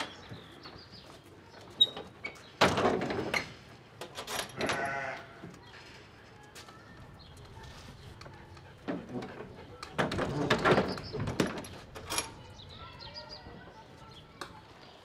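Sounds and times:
sheep bleating: 4.6s - 5.4s.

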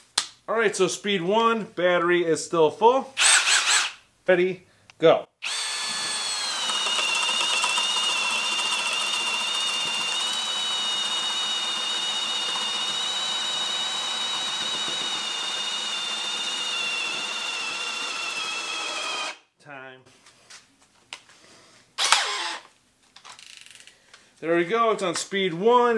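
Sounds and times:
drill boring into wood: 3.2s - 4.0s, 5.4s - 19.4s, 22.0s - 22.7s.

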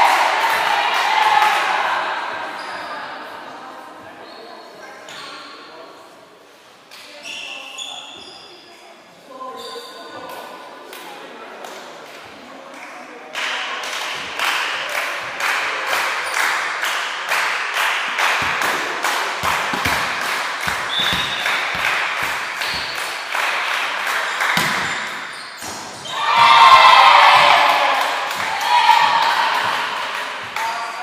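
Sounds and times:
crowd shouting and cheering: 0.0s - 2.6s, 25.9s - 31.0s
rhythmic clapping: 13.4s - 24.8s, 27.6s - 31.0s.

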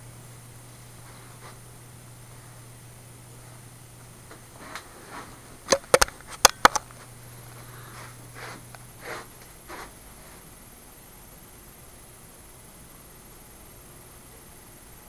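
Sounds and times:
camera handling clicks and knocks: 5.7s - 6.9s.

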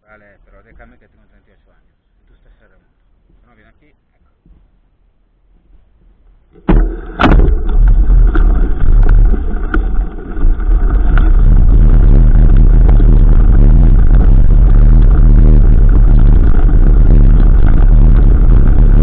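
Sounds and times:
mountain bike knocks and rattles: 6.5s - 11.4s
wind rumble on microphone: 6.7s - 19.0s.

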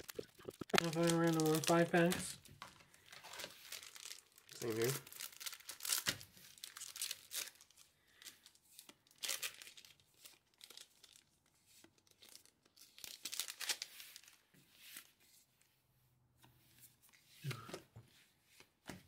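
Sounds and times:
wrappers torn and crinkled: 0.0s - 14.4s.

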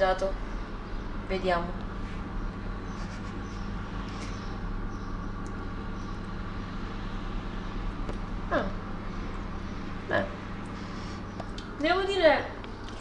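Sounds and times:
low mechanical hum: 0.0s - 13.0s.

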